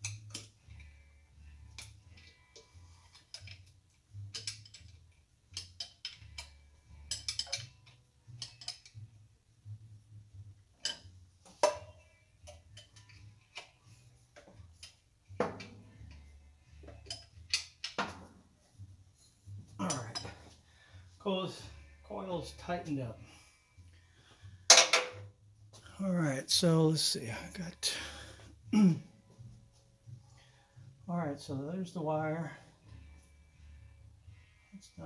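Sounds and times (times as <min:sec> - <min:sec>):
metallic clicks of hand tool: 0:03.2 - 0:03.7, 0:04.3 - 0:09.0.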